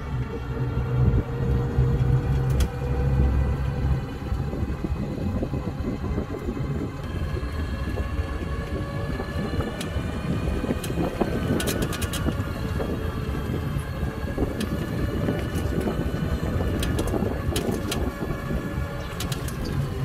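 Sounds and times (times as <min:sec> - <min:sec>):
electric motor whine: 0:00.0 - 0:20.0
road and tyre rumble: 0:00.0 - 0:20.0
sharp clicks: 0:19.0 - 0:19.9.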